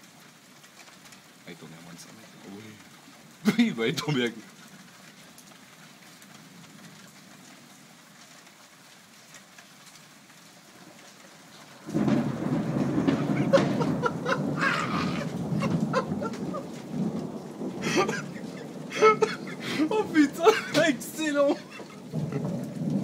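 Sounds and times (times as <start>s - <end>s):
rain hiss: 0.0s - 23.0s
thunderclap rumbling: 11.7s - 23.0s.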